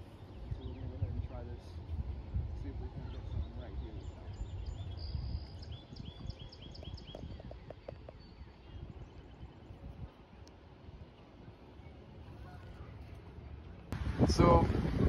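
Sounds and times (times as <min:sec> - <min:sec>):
wind rumbling on microphone: 0:00.0 - 0:15.0
soft ticks: 0:10.4 - 0:10.6.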